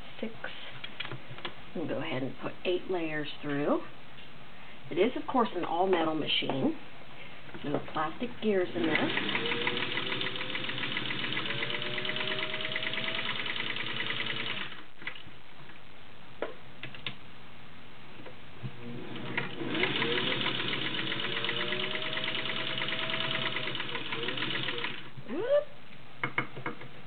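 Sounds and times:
sewing machine running fast: 8.8s - 14.8s, 19.2s - 25.1s.

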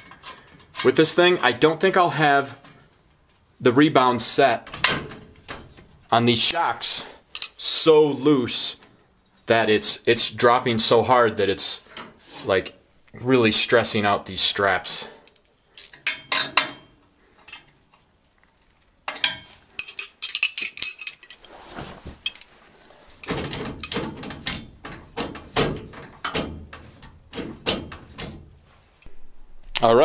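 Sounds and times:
wrenches and bolts clinking: 0.0s - 1.6s, 4.6s - 7.9s, 15.2s - 29.1s.

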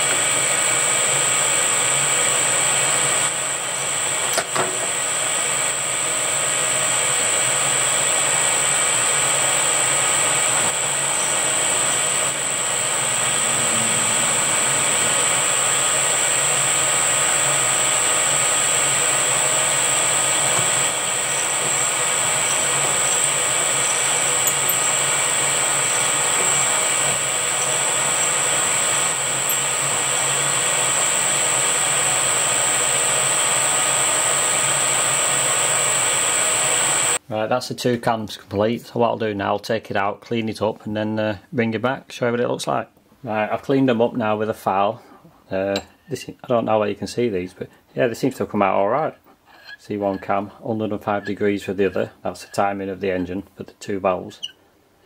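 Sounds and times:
milling machine high whine: 0.0s - 37.2s.

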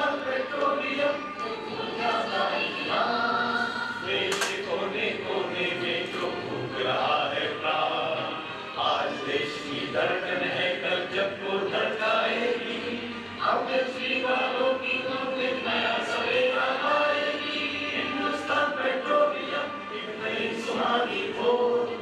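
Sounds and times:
group chanting in unison: 0.0s - 22.0s.

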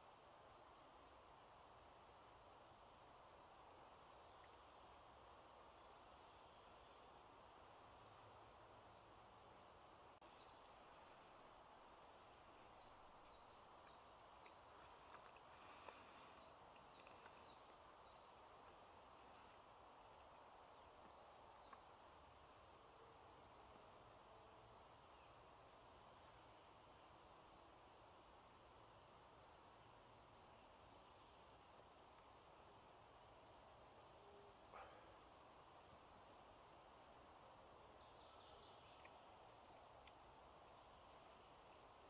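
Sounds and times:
small birds chirping: 10.1s - 28.0s, 37.8s - 42.0s.

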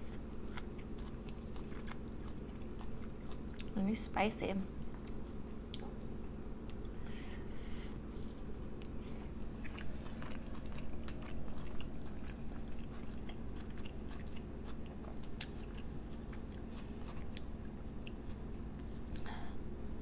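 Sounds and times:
close chewing and crunching: 0.0s - 4.0s, 4.7s - 7.0s, 8.0s - 19.3s
steady low hum: 0.0s - 20.0s.

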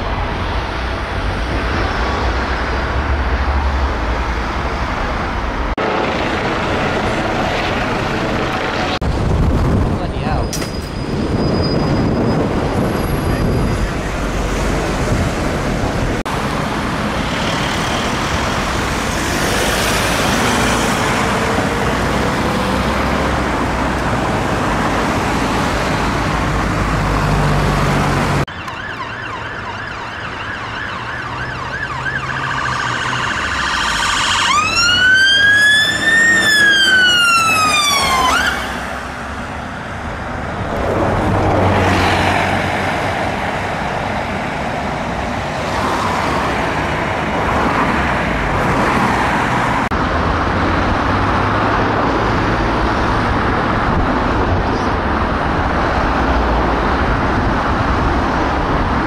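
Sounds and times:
road and engine noise: 0.0s - 59.0s
emergency vehicle siren: 27.0s - 40.2s.

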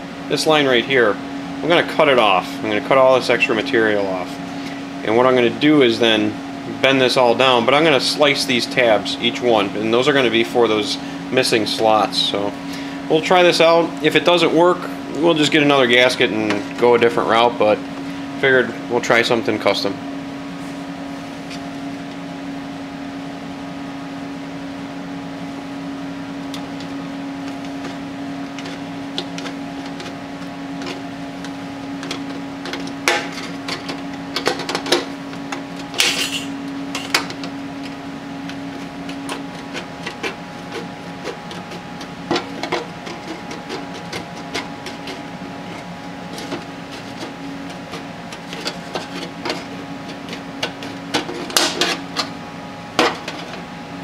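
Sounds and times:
snips cutting sheet metal: 32.0s - 35.1s, 35.9s - 37.4s.

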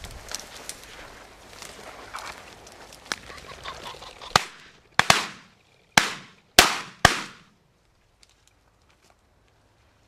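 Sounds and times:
footsteps through dry grass: 0.0s - 3.7s
shotgun shots with echo: 4.4s - 7.5s.

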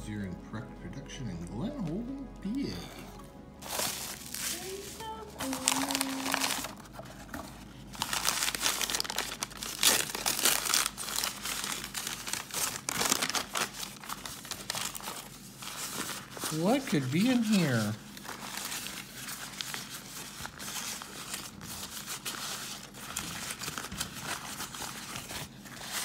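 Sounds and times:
bubble wrap crinkling: 2.0s - 26.0s
paper wrapping rustling: 3.2s - 26.0s.

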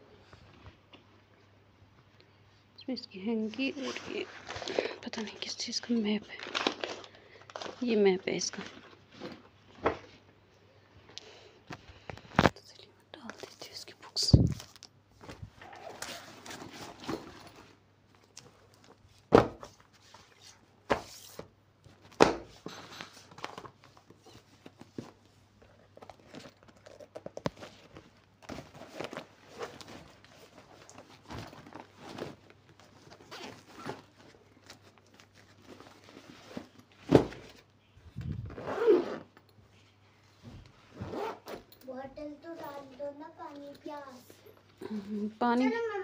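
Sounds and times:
backpack rustling: 15.2s - 17.8s, 25.9s - 39.3s, 40.9s - 41.7s.

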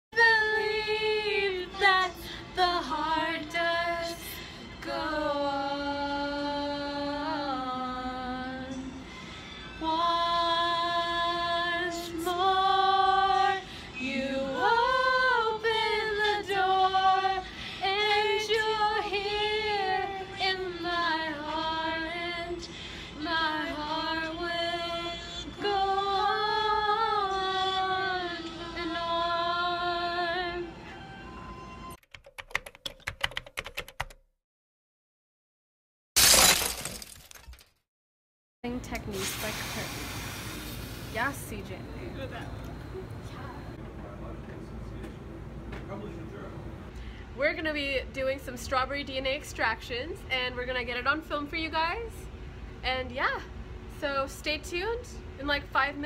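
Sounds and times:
woman singing long gliding notes: 0.2s - 9.1s, 9.8s - 30.8s.

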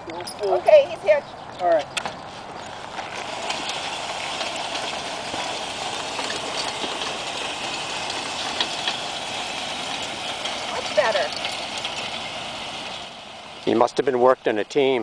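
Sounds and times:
harrow scraping over sand: 2.2s - 14.2s.

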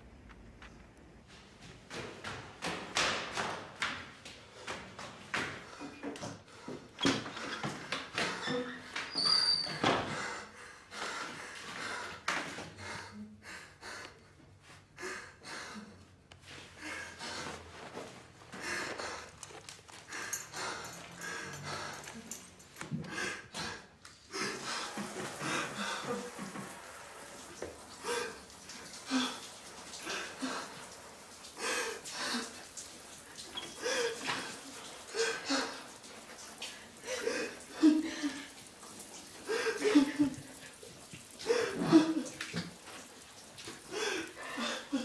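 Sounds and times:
man breathing hard: 18.5s - 26.3s.

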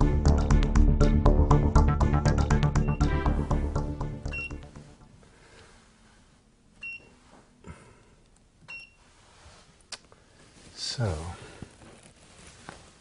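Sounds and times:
background music: 0.0s - 5.4s
control panel beeping: 4.2s - 4.8s.

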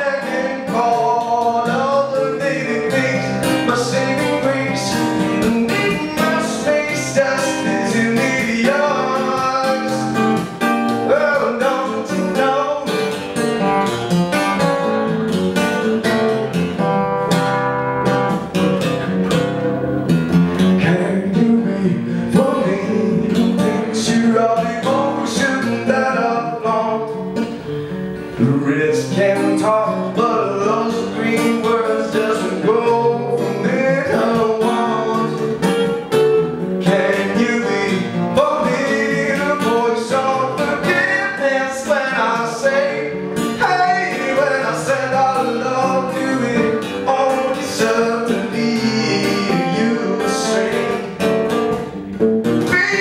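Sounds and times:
man singing: 0.0s - 13.2s, 20.8s - 27.3s, 28.3s - 35.8s, 36.8s - 51.3s, 52.6s - 53.0s
acoustic guitar playing: 0.0s - 53.0s.

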